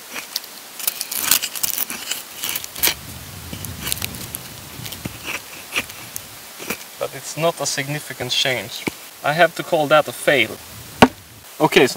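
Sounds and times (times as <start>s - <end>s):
axe scraping wood: 1.0s - 3.0s, 11.0s - 11.2s.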